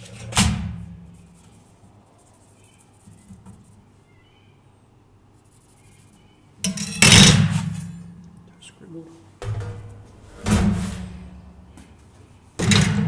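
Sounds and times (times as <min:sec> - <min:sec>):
marker scratching on sheet metal: 0:00.0 - 0:04.0, 0:05.3 - 0:06.4
sheet metal clattering: 0:09.4 - 0:11.5, 0:12.6 - 0:13.0.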